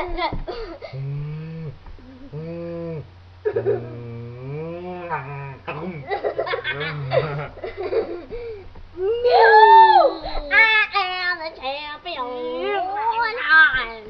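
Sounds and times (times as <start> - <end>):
young people laughing and yelling: 9.0 - 10.6.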